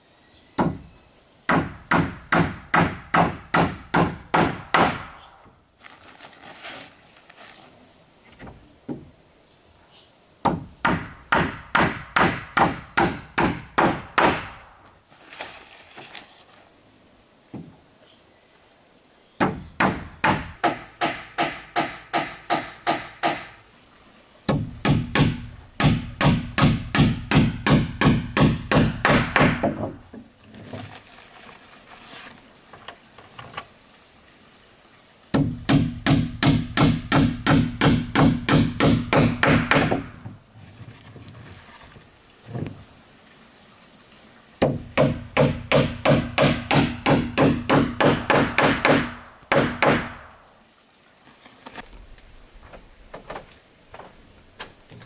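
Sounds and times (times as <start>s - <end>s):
hammer nailing wooden planks: 1.5s - 5.2s, 10.4s - 14.7s, 19.4s - 23.6s, 24.5s - 30.0s, 35.4s - 40.2s, 44.6s - 50.3s.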